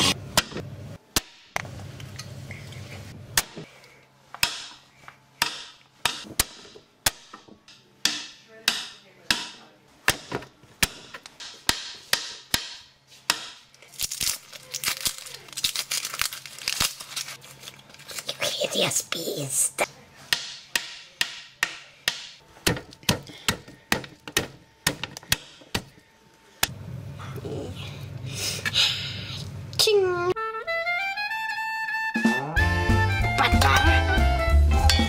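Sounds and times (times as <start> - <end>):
knife chopping vegetables on board: 20.3 - 25.9.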